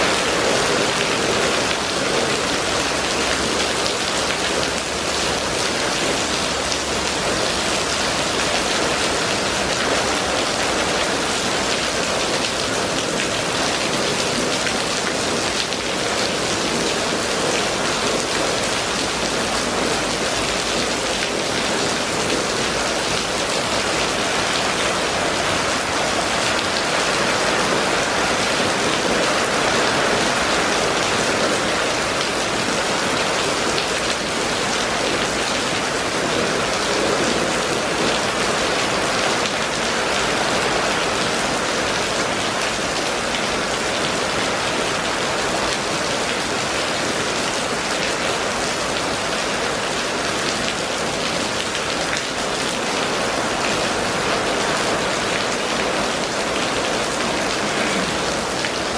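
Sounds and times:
rain on wet street: 0.0s - 58.9s.

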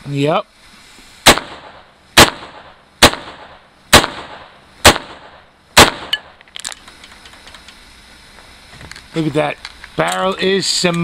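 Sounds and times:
rifle shots: 1.2s - 6.4s.

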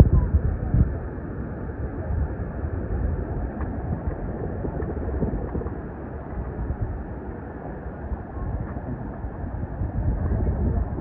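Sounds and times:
wind buffeting microphone: 0.0s - 11.0s
water washing: 2.8s - 11.0s.

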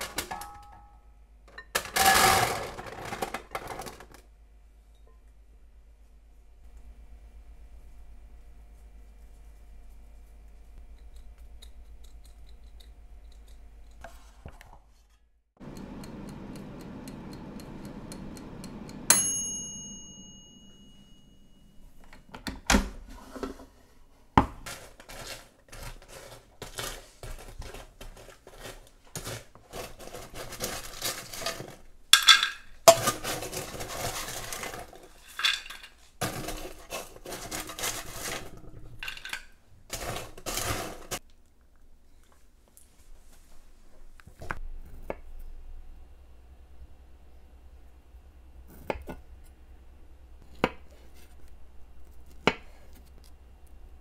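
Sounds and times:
utensil clink ringing: 19.1s - 22.0s
kitchenware clattering: 24.4s - 41.2s.

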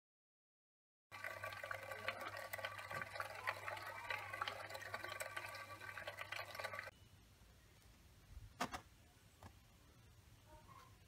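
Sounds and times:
stirring hotplate hum: 1.1s - 6.9s.

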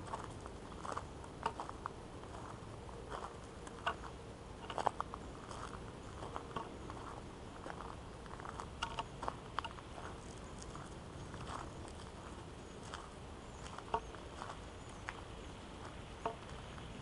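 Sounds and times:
footsteps crunching on gravel: 0.0s - 16.9s.

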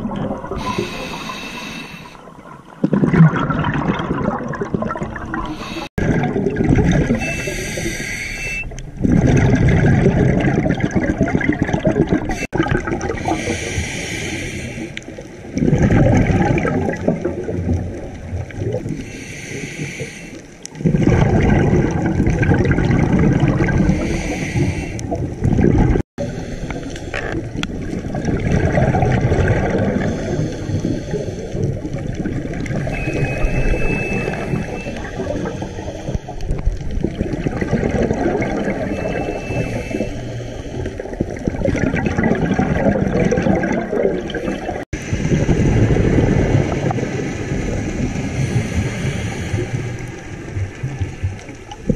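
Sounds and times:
exhaled bubbles rushing underwater: 0.0s - 20.1s, 20.7s - 51.9s
regulator hissing inhalations: 0.6s - 2.2s, 7.2s - 8.6s, 13.3s - 15.0s.

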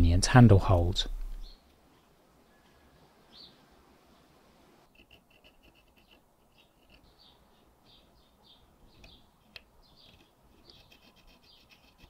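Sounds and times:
hand file scraping strokes: 4.9s - 7.0s, 10.6s - 12.0s.

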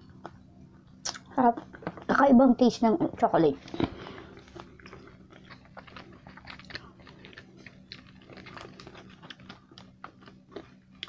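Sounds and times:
crunchy chewing: 3.6s - 11.0s.

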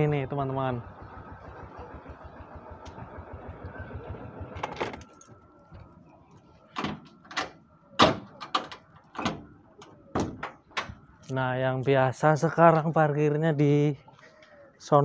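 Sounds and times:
metal door panel knocks and clacks: 10.1s - 11.0s.

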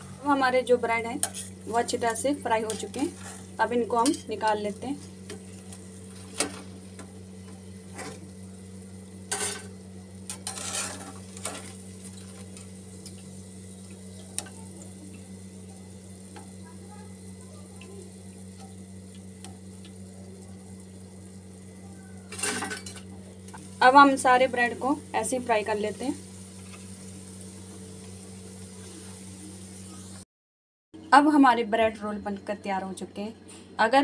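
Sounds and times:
oil sizzling faintly: 0.0s - 30.2s
steady low hum: 0.0s - 30.2s
metal skimmer scraping and clinking: 10.3s - 11.7s.

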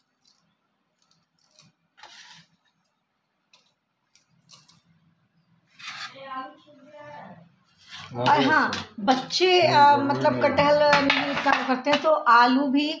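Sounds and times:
dried chillies crackling: 0.0s - 5.0s.

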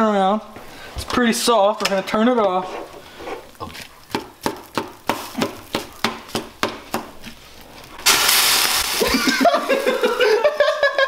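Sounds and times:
pot boiling over and sizzling: 2.9s - 11.0s.

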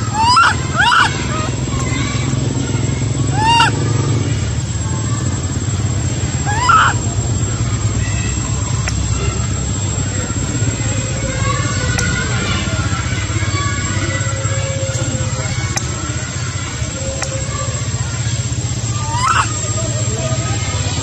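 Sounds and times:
baby monkey crying: 0.0s - 2.4s, 3.0s - 3.9s, 6.2s - 7.2s, 18.9s - 19.7s.

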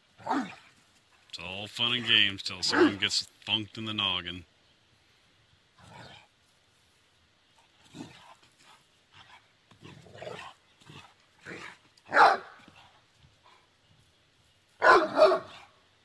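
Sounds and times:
dog barking: 2.7s - 3.0s, 12.1s - 12.6s, 14.8s - 15.7s.

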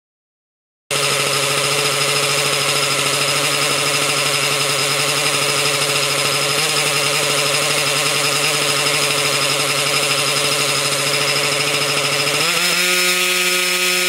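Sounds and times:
model helicopter engine running: 0.9s - 14.0s.

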